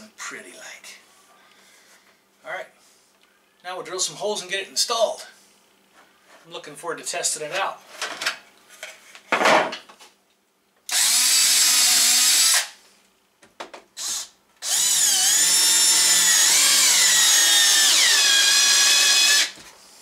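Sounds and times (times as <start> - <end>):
cordless drill whining: 10.9 - 12.8, 14.0 - 19.6.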